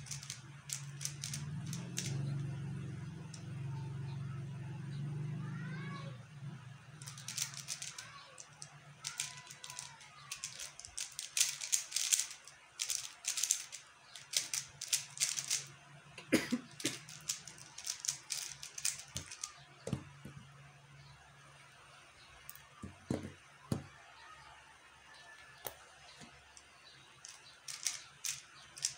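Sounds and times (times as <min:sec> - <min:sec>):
puzzle cube plastic clicking: 0:00.0 - 0:02.3, 0:07.0 - 0:15.7, 0:16.6 - 0:20.2, 0:27.2 - 0:28.9.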